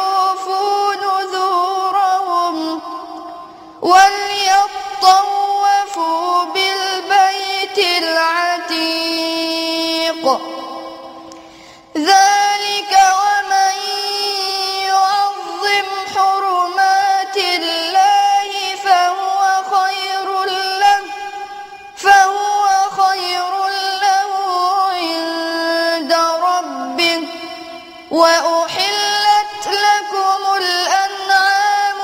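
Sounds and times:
boy chanting melodically: 0:00.0 - 0:32.0
short breath: 0:03.4 - 0:03.8, 0:11.3 - 0:12.0.

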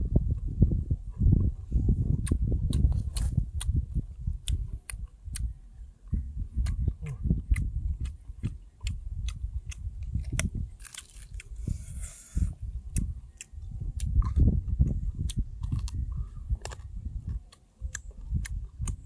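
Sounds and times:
soft low thumps: 0:00.0 - 0:10.7
person chewing crunchy food: 0:02.2 - 0:05.5, 0:06.4 - 0:19.0.

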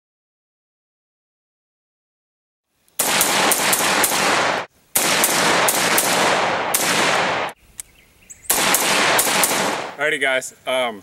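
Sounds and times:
rapid rifle shots with echo: 0:03.0 - 0:07.6, 0:08.5 - 0:10.0.

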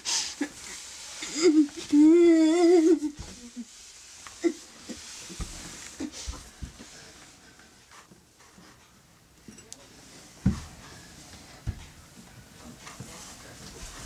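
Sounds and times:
faint breathy hiss: 0:00.0 - 0:08.1.

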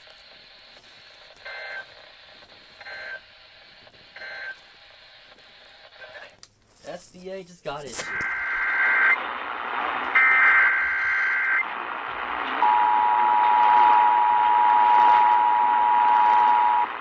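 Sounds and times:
radio static hiss: 0:00.0 - 0:17.0
screeching data burst: 0:08.1 - 0:09.2, 0:10.1 - 0:11.7.

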